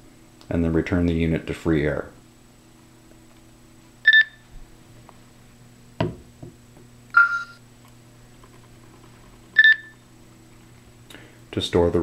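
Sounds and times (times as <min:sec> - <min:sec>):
meter beeps: 0:04.0 - 0:04.4, 0:07.1 - 0:07.6, 0:09.6 - 0:10.0
meter knocking on sample: 0:06.0 - 0:06.6.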